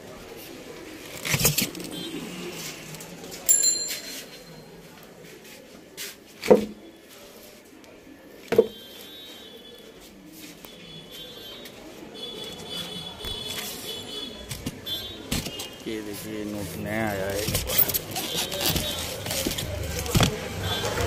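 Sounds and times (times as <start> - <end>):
clink with ringing tone: 3.5 - 4.7.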